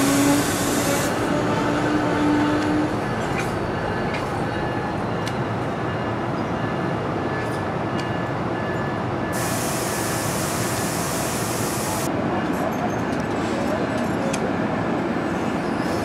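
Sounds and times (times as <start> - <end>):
hiss: 9.4 - 12.1.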